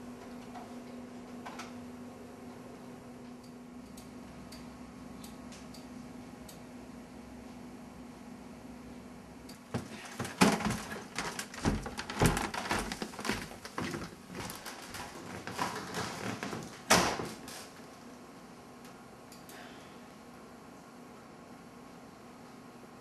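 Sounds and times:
faint steady hum: 0:00.0 - 0:23.0
objects knocking and clattering: 0:09.7 - 0:17.4.

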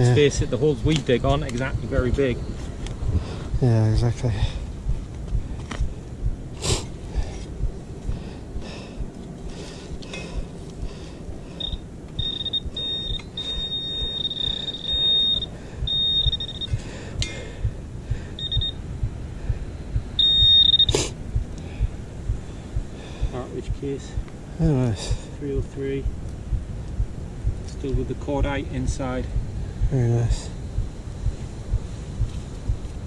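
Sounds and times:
pinpointer beeping: 0:11.6 - 0:16.8, 0:18.4 - 0:18.8, 0:20.2 - 0:21.0.

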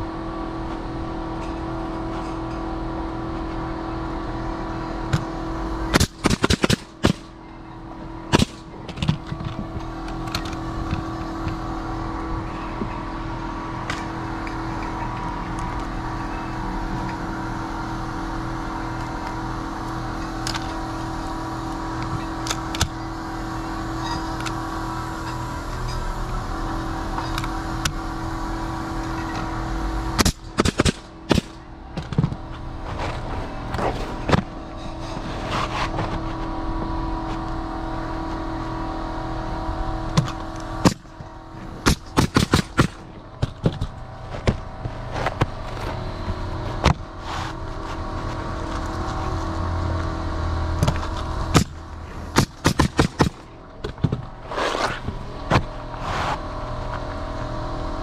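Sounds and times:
mechanical hum: 0:00.0 - 0:58.0
nail gun firing: 0:05.9 - 0:07.4, 0:08.3 - 0:08.7, 0:30.2 - 0:31.6, 0:41.8 - 0:43.0, 0:51.5 - 0:53.4.

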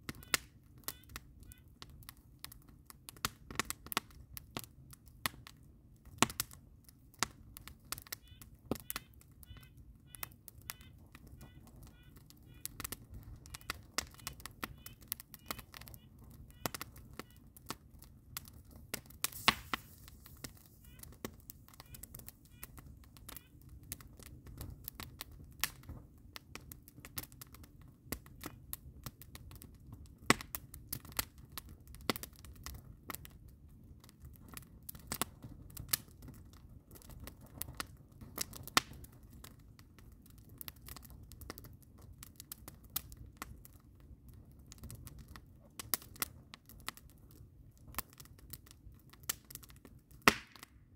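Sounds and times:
wood fire crackling: 0:00.0 - 0:50.9.

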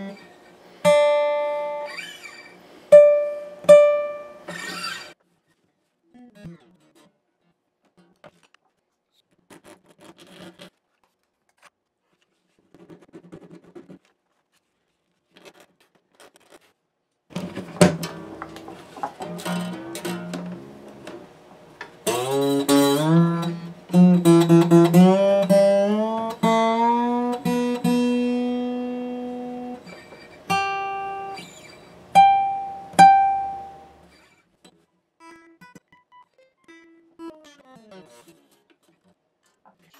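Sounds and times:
acoustic guitar being tuned: 0:00.0 - 0:05.1, 0:17.3 - 0:34.3.

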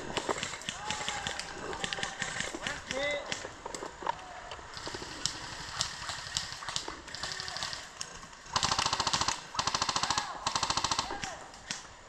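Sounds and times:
airsoft rifle automatic bursts: 0:04.7 - 0:11.3.

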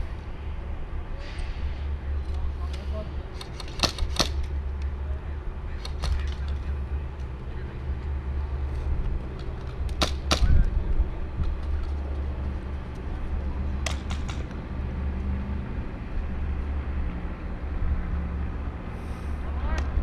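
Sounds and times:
wind on microphone: 0:10.4 - 0:11.8.

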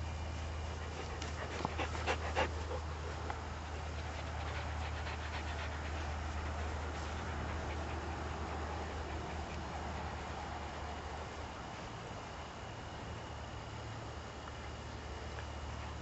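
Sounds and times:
steady low hum: 0:00.0 - 0:16.0
dog panting: 0:00.2 - 0:11.4.

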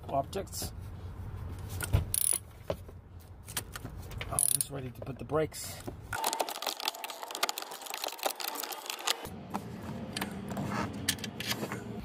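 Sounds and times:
ratchet clicking: 0:02.2 - 0:02.4.

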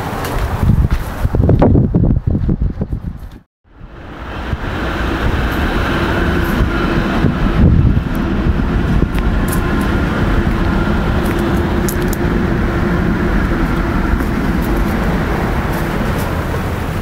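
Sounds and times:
low rumbling noise: 0:00.0 - 0:17.0
faint hum: 0:03.7 - 0:17.0.

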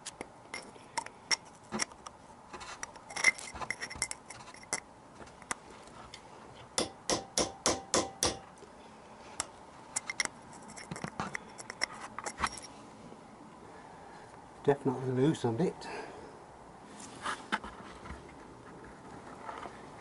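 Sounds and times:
hammer striking chisel on metal: 0:06.8 - 0:08.4.

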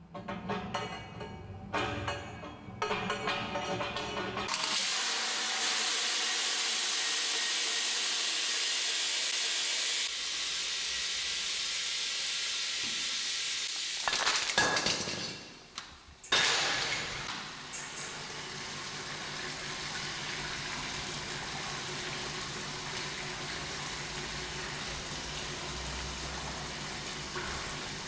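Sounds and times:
clattering metal knocks: 0:00.0 - 0:04.6
steady hiss: 0:09.1 - 0:14.1.

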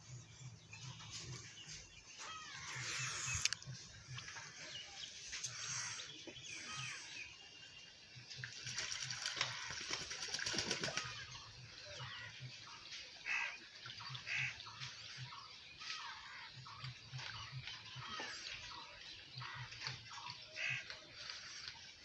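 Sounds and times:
bird calls: 0:00.0 - 0:22.0
duck splashing and flapping wings: 0:08.4 - 0:11.4.

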